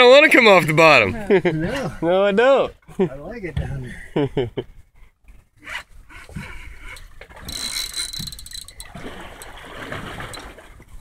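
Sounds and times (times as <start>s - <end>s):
fishing reel whirring: 6.8s - 9.6s.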